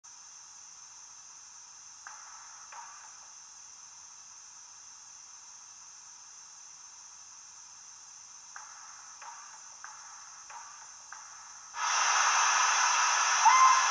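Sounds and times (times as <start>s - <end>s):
model steam engine hissing: 11.8s - 13.9s.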